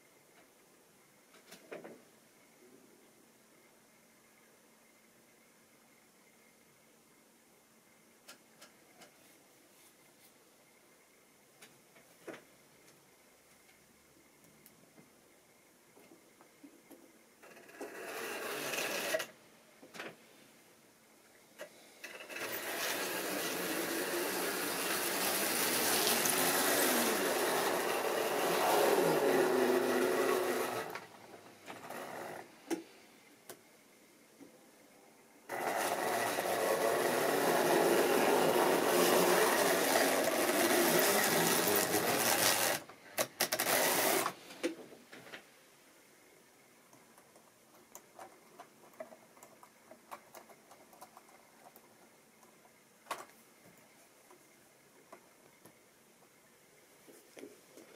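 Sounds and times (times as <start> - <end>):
model train running on track: 22.2 - 31.0, 35.5 - 42.8.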